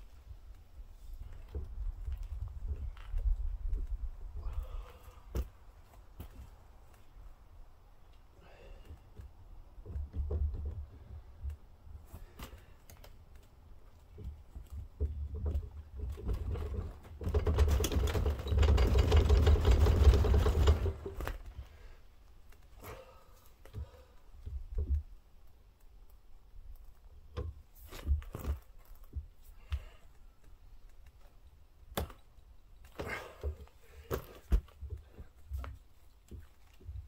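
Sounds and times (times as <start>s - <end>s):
rapid mechanical clicking and rattling: 16.1s - 21.4s.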